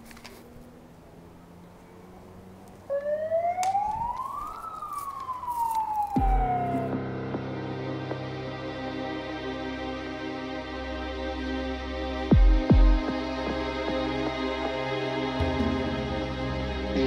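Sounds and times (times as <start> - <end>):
siren wail: 0.5 - 7.5
music: 6.2 - 17.0.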